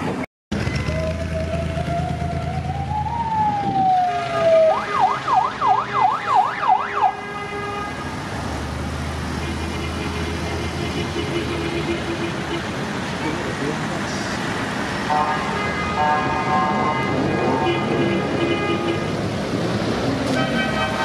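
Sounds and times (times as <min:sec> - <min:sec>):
vehicle engine rumble: 0:00.0 - 0:18.4
vehicle siren wailing and yelping: 0:00.6 - 0:07.4.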